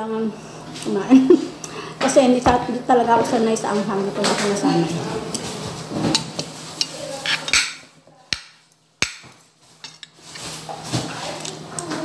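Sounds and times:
cutlery clinking against a plate: 6.0 - 7.8.

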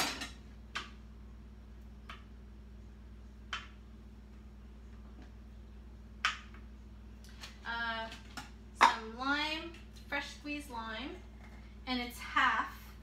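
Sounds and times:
steady low hum: 0.0 - 13.0
woman's voice: 7.6 - 8.2, 8.8 - 11.2, 11.8 - 13.0.

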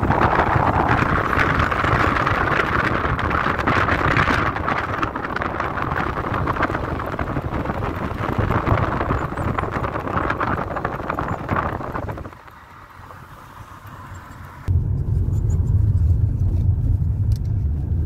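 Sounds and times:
wind buffeting microphone: 0.0 - 13.6
car road noise: 0.0 - 18.0.

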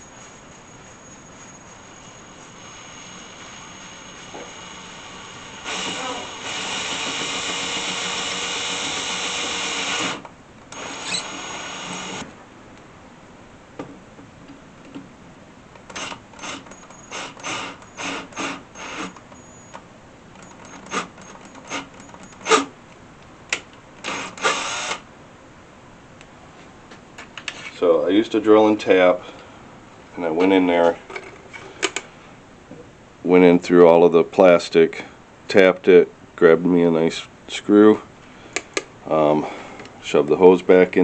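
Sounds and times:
cordless drill drilling plastic: 2.6 - 12.2, 16.0 - 19.2, 24.0 - 25.0
drill clicks: 3.4 - 12.3, 15.8 - 19.4, 20.4 - 22.7, 23.5 - 25.0.

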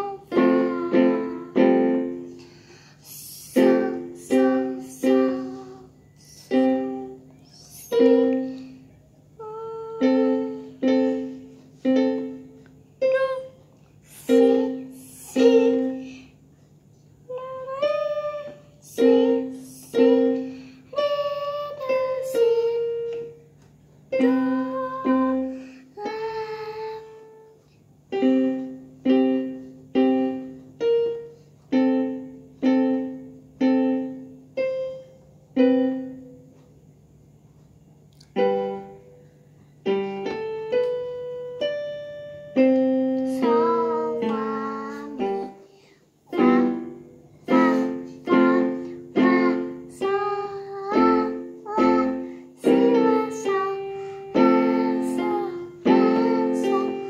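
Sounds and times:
faint low hum: 0.0 - 57.0
electronic keyboard piano chords: 17.3 - 36.8, 37.6 - 57.0.

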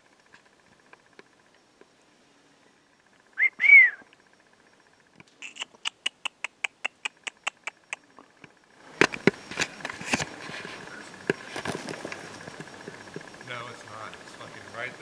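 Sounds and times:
man imitating chipmunk chirps: 3.4 - 4.0, 5.4 - 8.1
rustling: 8.9 - 13.8.

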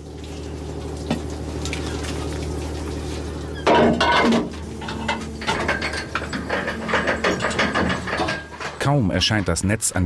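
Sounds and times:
boat engine and winch drone: 0.0 - 8.9
metal clanking and clattering: 3.6 - 9.6.

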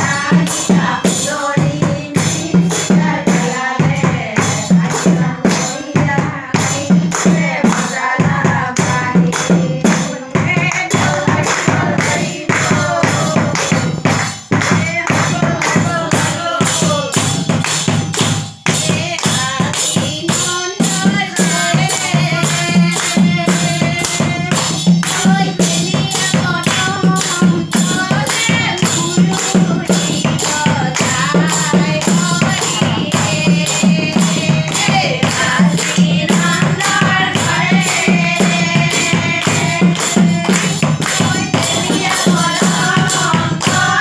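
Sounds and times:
women singing together: 0.0 - 44.0
hand-clapping: 6.6 - 20.0, 21.8 - 44.0.

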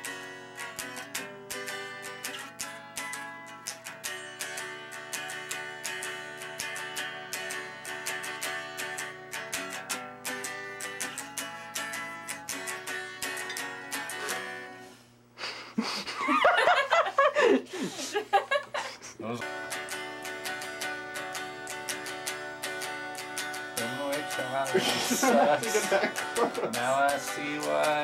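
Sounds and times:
electric guitar picking chords: 0.0 - 15.0, 19.4 - 28.0
laughter: 15.8 - 19.0, 24.7 - 26.8.

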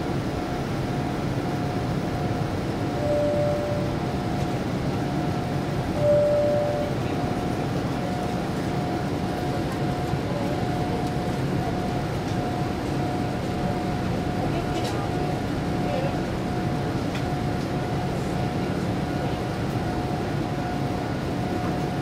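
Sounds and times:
faint steady whine: 0.0 - 8.1
airplane engine and airflow rumble: 0.0 - 22.0
short single tone: 3.0 - 4.0, 6.0 - 7.0.

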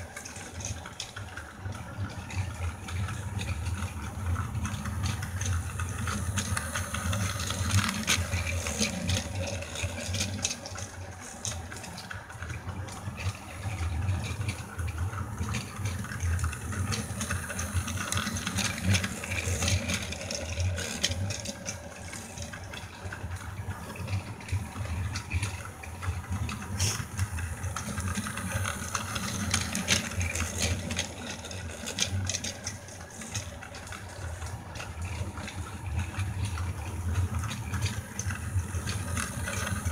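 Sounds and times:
toy train motor hum: 0.0 - 39.9
wheels rattling over track: 0.0 - 39.9.

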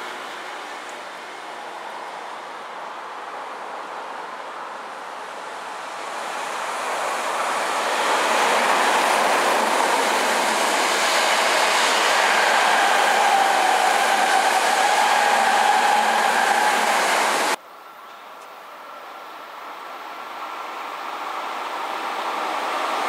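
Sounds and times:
electric train passing: 5.2 - 17.6.

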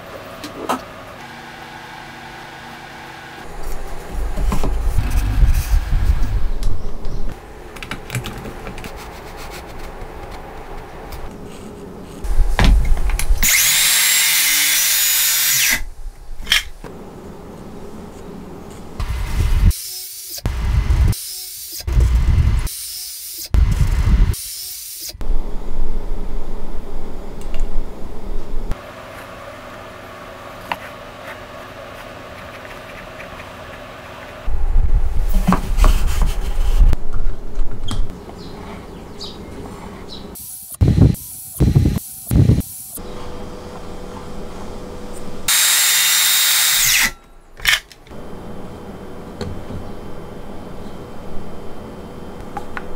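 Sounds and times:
loud low rumbling: 3.4 - 7.4, 34.5 - 37.6
knocks and clicks handling wood: 7.8 - 9.1
pencil scratching on wood: 8.8 - 12.3
circular saw cutting wood: 13.4 - 15.9, 45.4 - 47.2.

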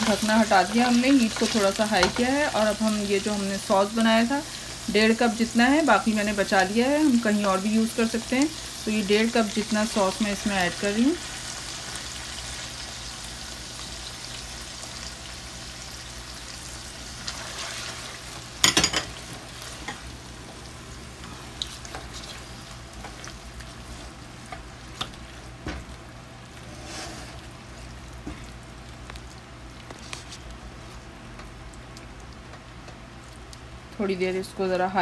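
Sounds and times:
spatula knocking and scraping pan: 0.0 - 2.5
food sizzling in a frying pan: 0.0 - 31.6.

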